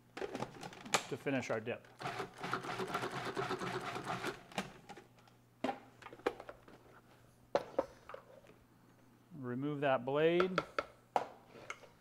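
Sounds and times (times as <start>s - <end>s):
food processor motor running: 2.0s - 4.4s.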